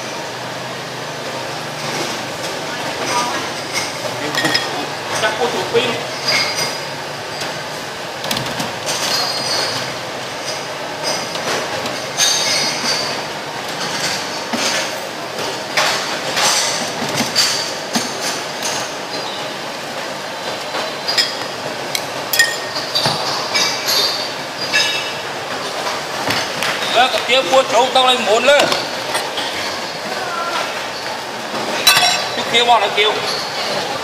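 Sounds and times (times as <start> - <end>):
ceramic bowls clinking: 3.0 - 5.4, 21.1 - 25.2, 31.6 - 33.9.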